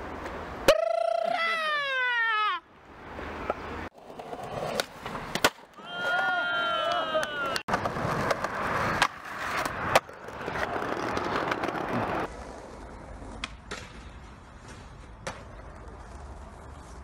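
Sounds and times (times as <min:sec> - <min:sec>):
skateboard wheels rolling on paving: 0:00.0 - 0:00.7, 0:02.2 - 0:17.0
skateboard clacks: 0:13.2 - 0:16.2.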